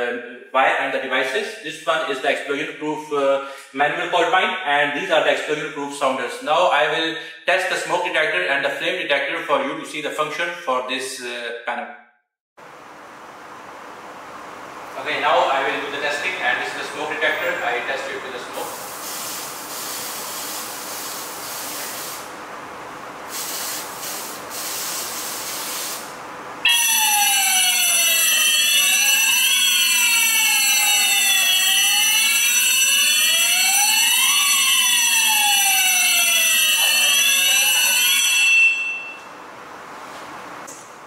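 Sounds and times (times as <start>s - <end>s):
fire alarm sirens sweeping: 15.6s - 18.9s, 26.6s - 39.4s
aerosol can hissing: 18.7s - 22.3s, 23.3s - 26.1s
steady high alarm tone: 26.6s - 39.3s.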